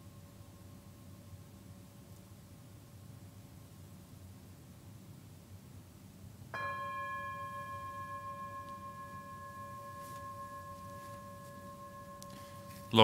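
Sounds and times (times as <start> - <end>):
small chime ringing: 6.6 - 13.0.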